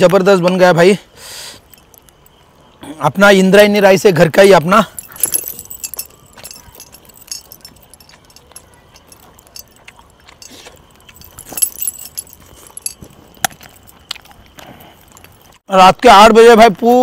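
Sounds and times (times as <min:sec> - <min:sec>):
metal bracelets jingling: 0:01.6 - 0:02.4, 0:03.7 - 0:15.6.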